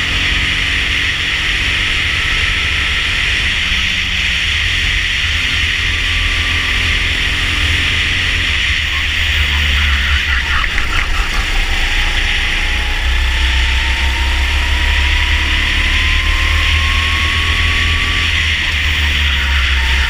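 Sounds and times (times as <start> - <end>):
go-kart engine accelerating: 0.0 - 20.0
wind rumbling on microphone: 8.0 - 14.6.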